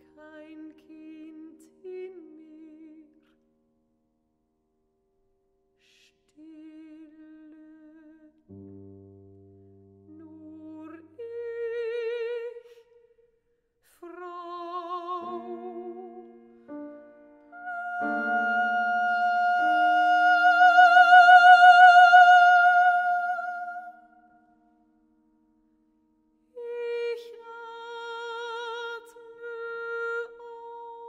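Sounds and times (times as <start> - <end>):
person singing classical song: 0.0 - 3.6, 5.8 - 31.0
piano accompaniment: 8.5 - 11.0, 14.6 - 23.3.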